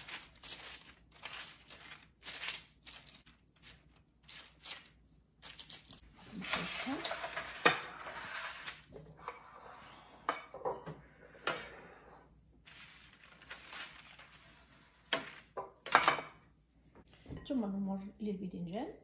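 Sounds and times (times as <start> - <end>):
parchment paper rustling: 0.0 - 8.9, 12.3 - 15.6
dishes knocking and clinking: 10.3 - 11.8, 15.1 - 16.4.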